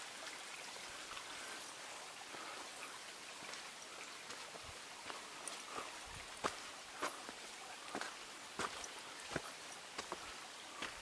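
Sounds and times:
stream trickling: 0:00.0 - 0:11.0.

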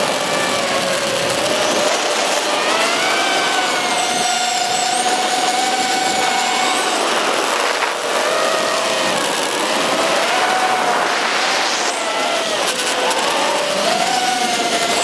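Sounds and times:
drone motors whining: 0:00.0 - 0:15.0
wind rushing: 0:07.0 - 0:14.1.

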